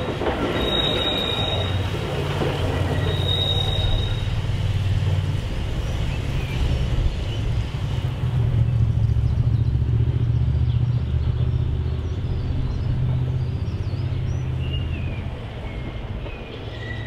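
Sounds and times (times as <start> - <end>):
electric tram rumbling on rails: 0.0 - 17.0.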